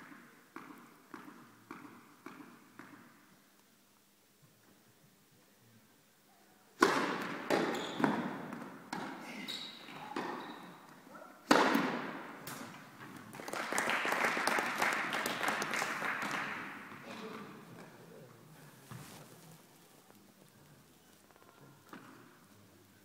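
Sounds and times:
tennis racket striking ball: 0:00.0 - 0:03.1, 0:06.8 - 0:09.2, 0:11.5 - 0:12.6.

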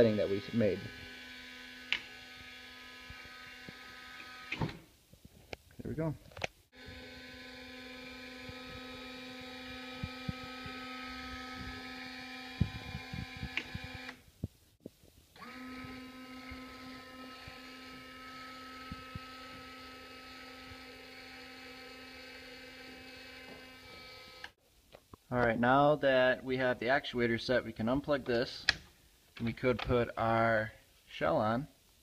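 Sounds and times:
small electric motor humming: 0:00.0 - 0:04.8, 0:06.7 - 0:14.2, 0:15.4 - 0:24.6.

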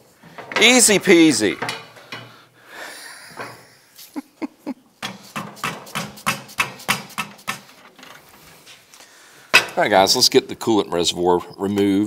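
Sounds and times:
hammer tapping on metal: 0:05.0 - 0:07.7.

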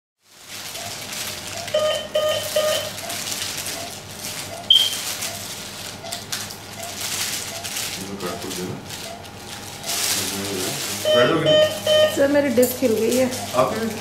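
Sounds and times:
short electronic beeps: 0:01.7 - 0:02.9, 0:04.7 - 0:05.0, 0:11.0 - 0:12.2.

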